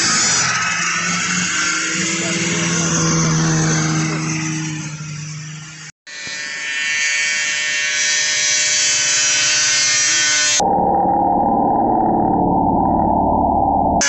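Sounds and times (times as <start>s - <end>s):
snowmobile engine at full throttle: 0.0s - 6.7s
high-pitched buzz of snowmobile engines: 0.0s - 14.0s.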